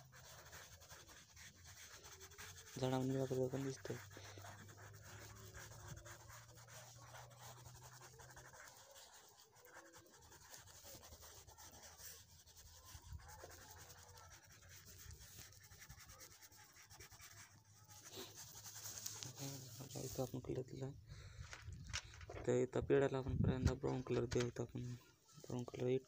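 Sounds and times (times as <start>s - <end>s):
pencil rubbing on paper: 0.0s - 20.6s.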